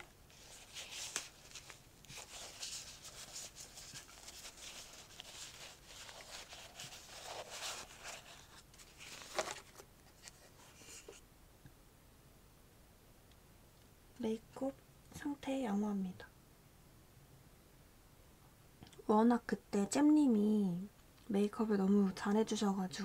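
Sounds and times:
fabric rustling: 0.0 - 11.2.

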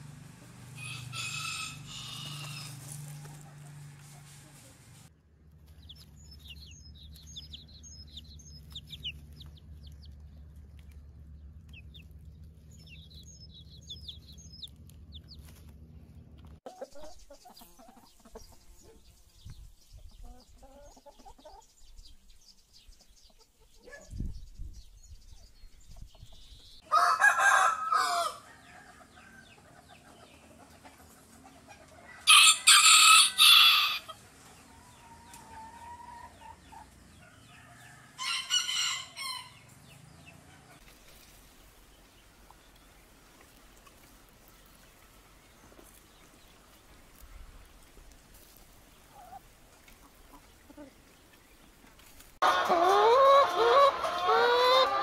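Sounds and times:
rooster crowing: 0.8 - 4.3, 26.8 - 29.6, 32.0 - 34.2, 37.3 - 39.7, 52.4 - 55.0
chicks peeping: 5.5 - 26.8, 28.6 - 32.2, 34.1 - 55.0
hens clucking: 5.6 - 19.1, 20.2 - 21.7, 29.0 - 37.5, 38.2 - 55.0.

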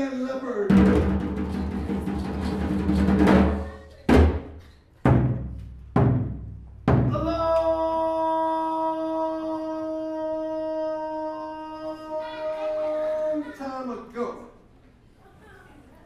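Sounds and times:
drum roll: 0.7 - 4.5
heavy drum strikes: 0.7 - 7.3.

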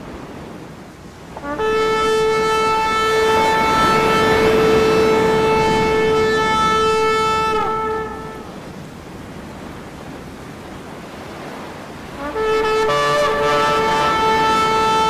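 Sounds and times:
rushing noise: 1.3 - 9.0
loud horn-like note: 1.4 - 8.7, 12.2 - 15.0.

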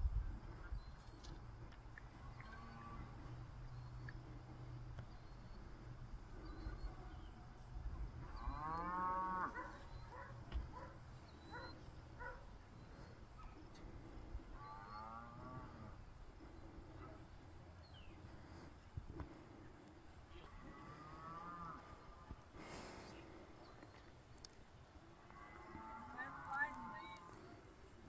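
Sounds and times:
faint bird chirps: 2.0 - 8.8, 9.6 - 13.9
cattle mooing: 8.3 - 9.8.

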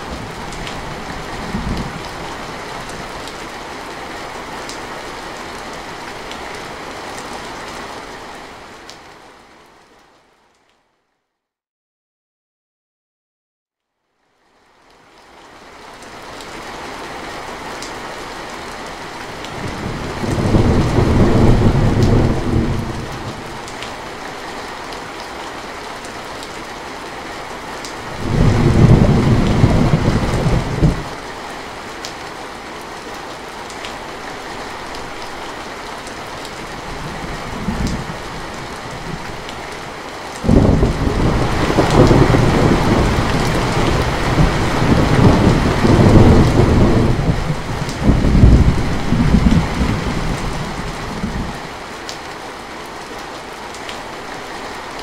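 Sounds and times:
thunder rumbling: 0.0 - 2.4, 19.6 - 23.7, 28.1 - 31.2, 36.7 - 39.5, 40.4 - 51.6
heavy rain: 0.0 - 10.6, 14.4 - 55.0.

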